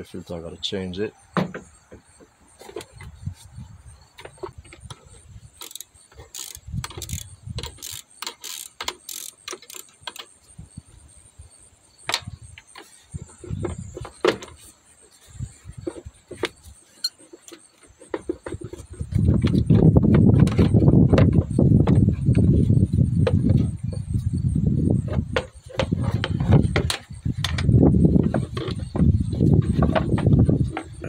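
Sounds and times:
socket ratchet clicking: 5.6 - 10.4
plastic parts knocking: 17.4 - 22.6, 25.0 - 31.0.

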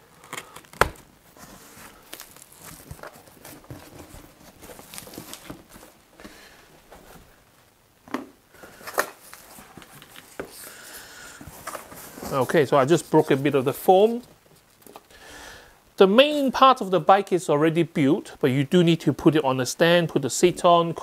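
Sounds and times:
cardboard and tape tearing: 0.2 - 6.0.

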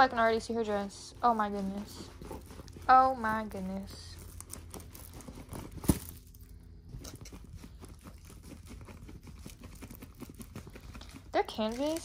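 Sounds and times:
plastic film crinkling: 1.1 - 6.5, 8.3 - 12.0.

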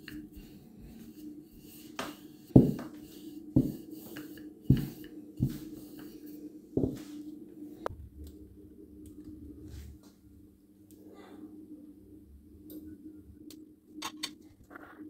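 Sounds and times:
steady low hum: 0.0 - 15.0
rolling pin knocking on board: 2.6 - 2.9.

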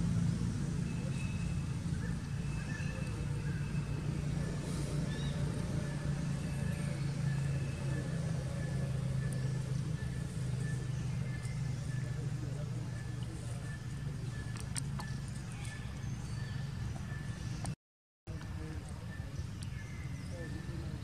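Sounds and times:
low engine hum: 0.0 - 21.0.

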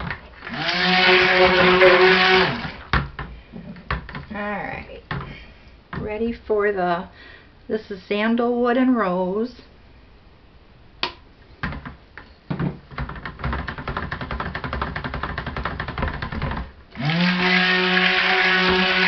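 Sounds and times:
stick blender motor humming: 0.4 - 2.9, 17.0 - 19.0.

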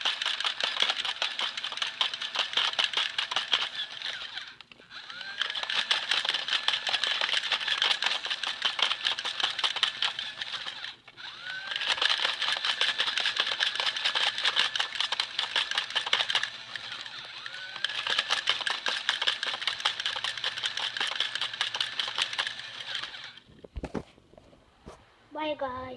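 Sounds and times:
mechanical clicking with motor whine: 0.0 - 23.4.

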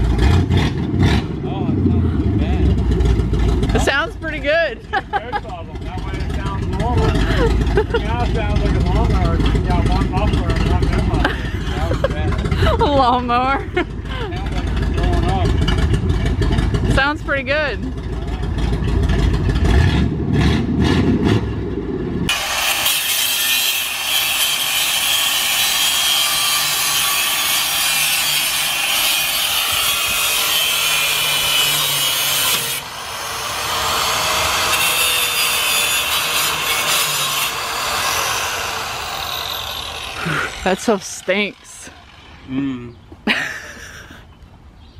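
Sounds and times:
pickup truck engine running: 0.0 - 22.3
angle grinder cutting metal: 22.3 - 42.5.

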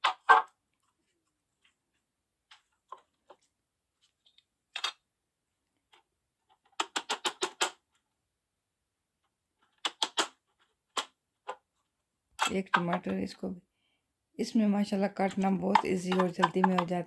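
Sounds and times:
hard plastic clicks: 6.6 - 7.8, 9.7 - 11.6.

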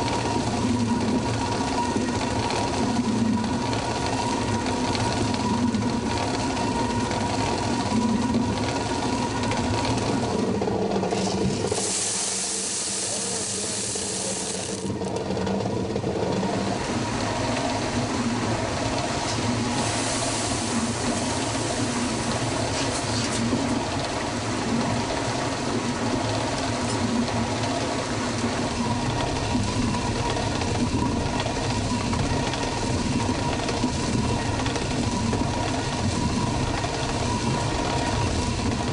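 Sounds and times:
corn kernels pouring hiss: 11.6 - 14.9, 19.8 - 23.3.

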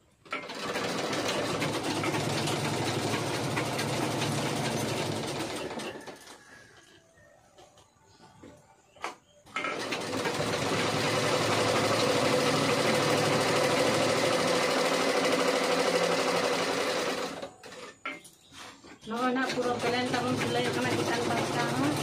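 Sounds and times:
sewing machine stitching: 0.2 - 6.5, 9.6 - 18.0, 19.1 - 22.0.

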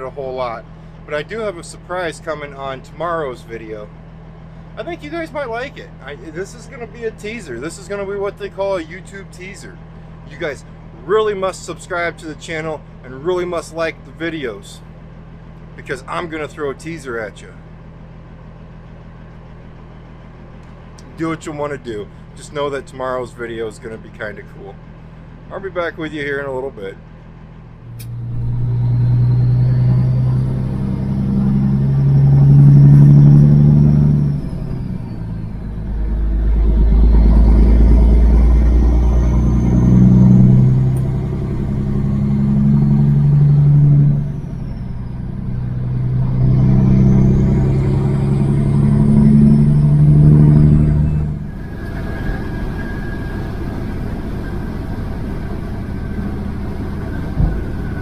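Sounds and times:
diesel truck engine accelerating: 0.0 - 58.0
turbo whistle: 28.0 - 40.6, 46.6 - 58.0.

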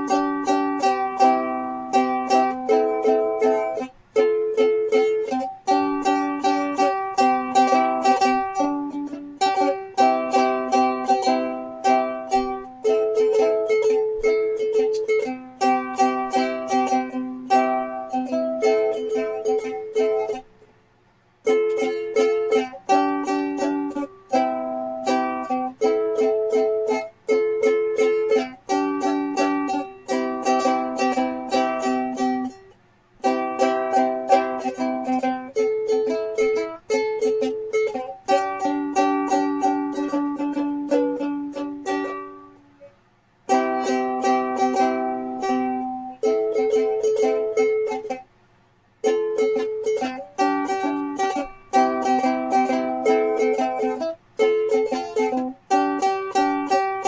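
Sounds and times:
ukulele strumming: 0.0 - 20.7, 21.4 - 57.0.

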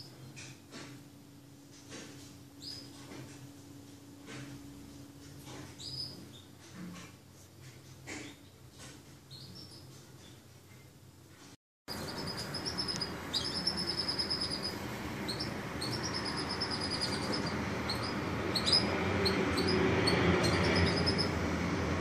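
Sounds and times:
canary singing trills: 2.6 - 3.0, 5.7 - 6.6, 9.3 - 10.4, 11.9 - 21.5
faint chirps: 11.9 - 21.4.

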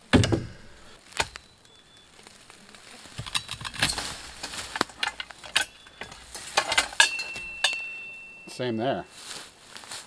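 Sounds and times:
metal clicks and knocks: 3.2 - 8.0.

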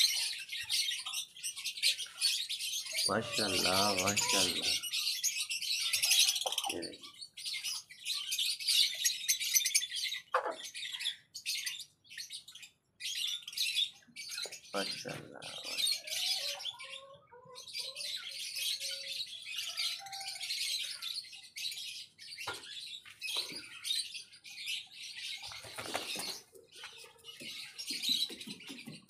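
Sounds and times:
small birds chirping: 0.0 - 29.0
chickens clucking: 2.8 - 5.0, 5.9 - 7.1, 10.2 - 10.8, 14.4 - 21.1, 22.4 - 23.9, 25.4 - 29.0
wing-flapping rustle: 25.5 - 26.5.

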